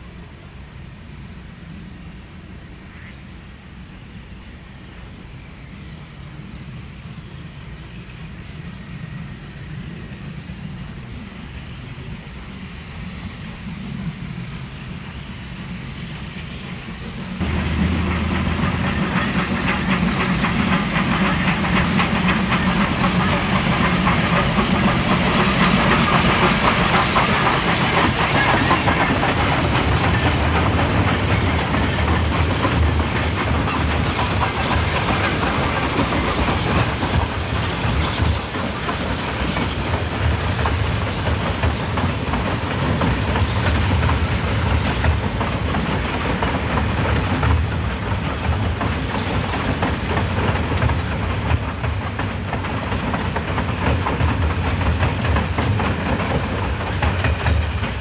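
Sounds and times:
steam hissing: 5.8s - 58.0s
train wheels clattering on rails: 7.9s - 58.0s.

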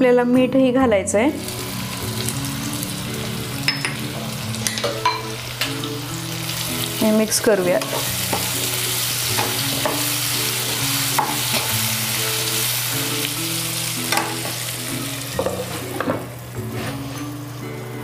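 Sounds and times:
mango pieces sizzling in oil: 1.3s - 18.0s
spatula scraping and tapping pan: 15.4s - 17.2s.

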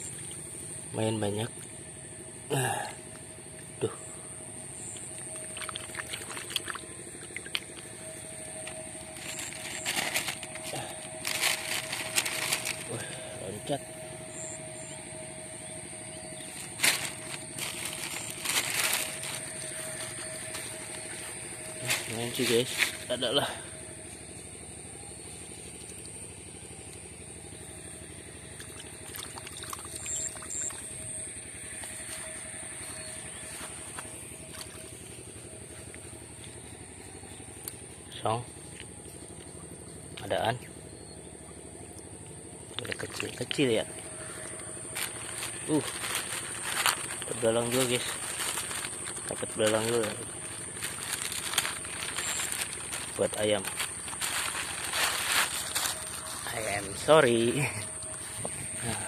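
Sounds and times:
low engine drone: 0.0s - 59.0s
small water splashes: 5.3s - 7.8s, 28.6s - 30.9s.

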